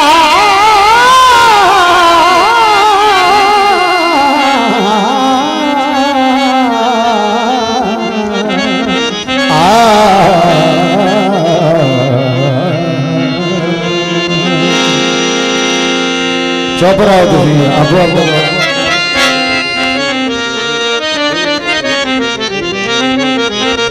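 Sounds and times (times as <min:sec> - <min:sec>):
man singing through a microphone: 0:00.0 - 0:15.2, 0:16.8 - 0:19.4
instrumental accompaniment: 0:00.0 - 0:23.9.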